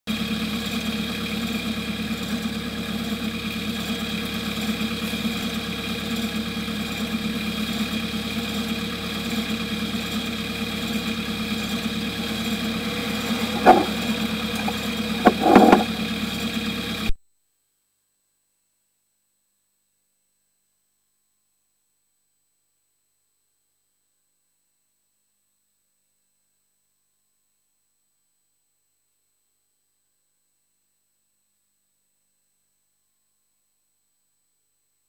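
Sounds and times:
steady machine hum: 0.2s - 17.1s
knocks: 13.4s - 16.0s.

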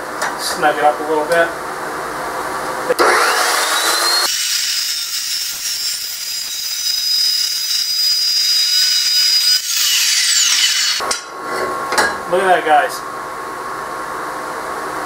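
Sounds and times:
chop saw whining: 3.0s - 11.0s
saw cutting steel tube: 3.0s - 11.1s.

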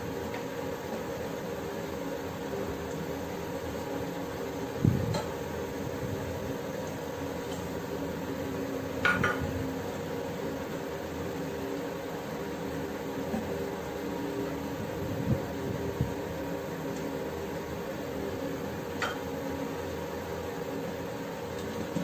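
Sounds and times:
broth boiling in a pot: 0.0s - 22.0s
utensils knocking against pot: 9.0s - 9.4s.

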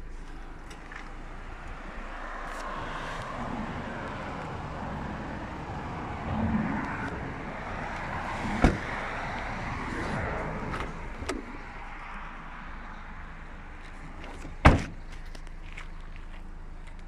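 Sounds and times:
outdoor background noise: 0.0s - 17.0s
car door shutting thud: 8.5s - 9.0s, 14.4s - 15.0s.

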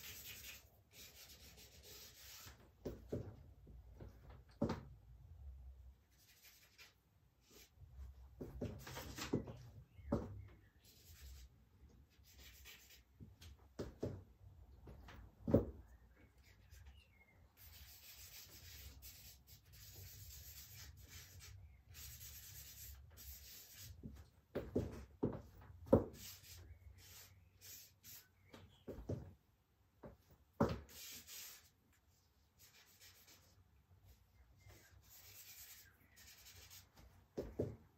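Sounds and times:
charcoal scratching on paper: 0.0s - 2.6s, 6.1s - 7.7s, 12.1s - 13.1s, 17.6s - 24.0s, 32.6s - 33.6s, 34.6s - 37.0s.

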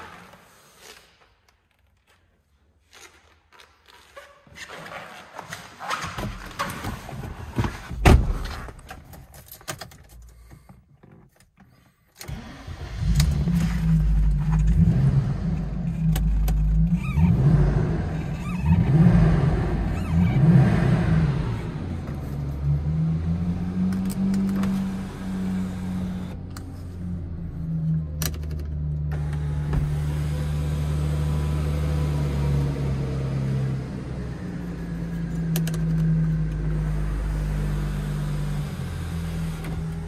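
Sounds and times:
car engine starting and running: 12.2s - 40.0s.

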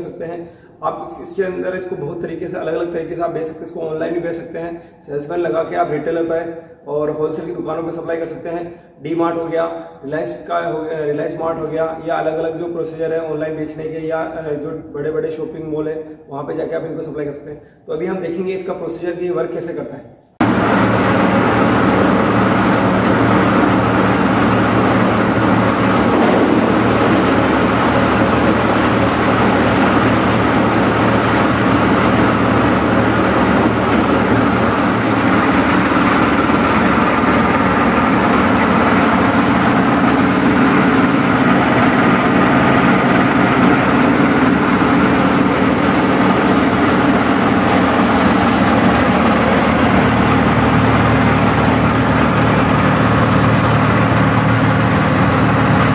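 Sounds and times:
machine motor humming: 20.4s - 55.9s.

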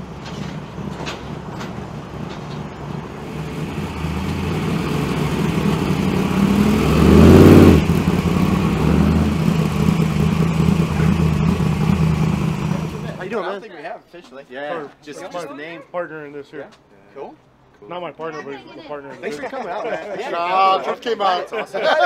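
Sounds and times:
truck engine rumbling: 0.0s - 13.3s.

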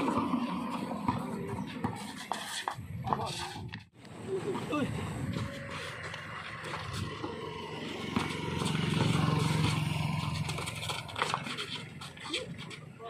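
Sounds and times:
basketball bouncing on concrete: 0.0s - 3.8s, 6.1s - 12.9s
vehicle engine hum passing: 4.4s - 13.0s.

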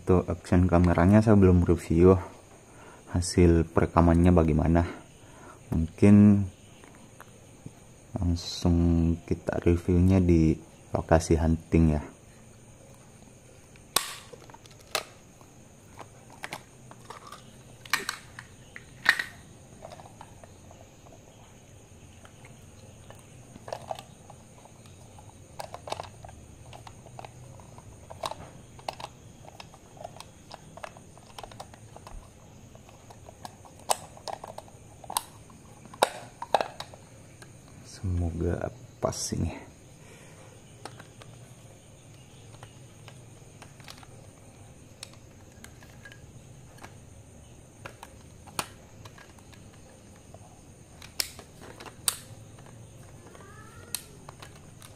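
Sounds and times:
plastic parts clicking and tapping: 13.7s - 21.2s, 22.2s - 37.6s, 40.8s - 47.1s, 47.7s - 54.9s.

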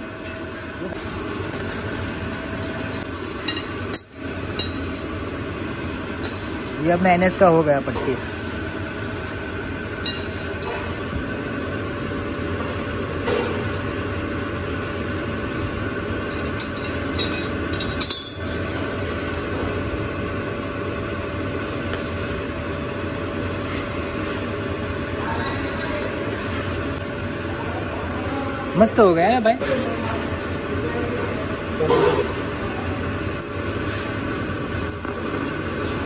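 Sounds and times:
steady machine drone: 0.0s - 36.0s
metal parts clinking: 1.4s - 2.2s, 16.3s - 18.6s.

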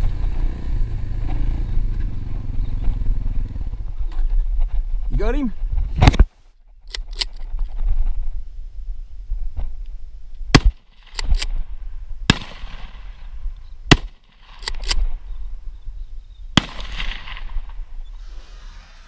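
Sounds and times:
shotgun shots: 10.5s - 11.6s, 12.3s - 13.2s, 13.9s - 15.1s, 16.6s - 17.8s
gun action clacks: 13.9s - 15.0s.

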